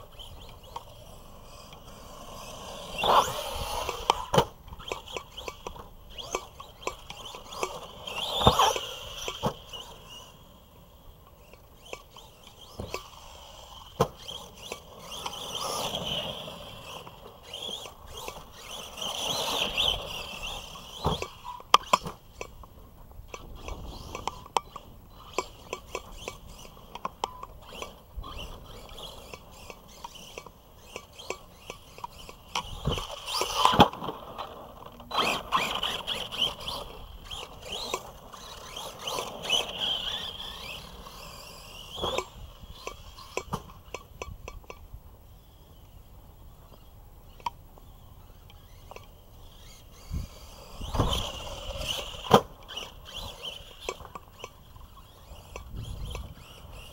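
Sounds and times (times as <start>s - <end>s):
toy truck electric motor whine: 0.0s - 56.9s
clattering knocks of landings: 11.4s - 44.8s.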